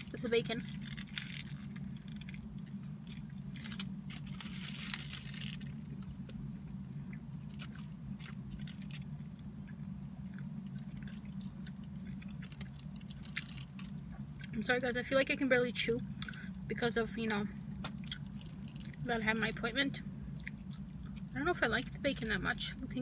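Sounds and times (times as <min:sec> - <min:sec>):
steady low hum: 0:00.0 - 0:23.0
biting and chewing food: 0:00.6 - 0:14.6, 0:17.7 - 0:19.5, 0:20.2 - 0:22.4.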